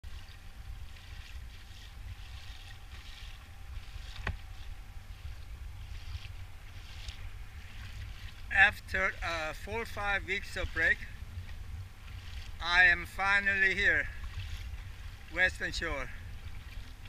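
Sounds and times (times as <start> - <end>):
waves lapping against kayak hull: 0.0 - 17.0
wind rumble on microphone: 0.0 - 17.0.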